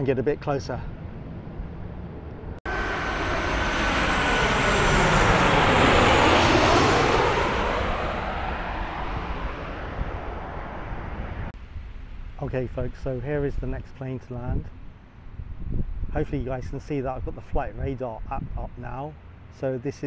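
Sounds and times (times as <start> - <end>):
jet engines roaring overhead: 0.0 - 11.6
falling thin whine: 2.2 - 11.5.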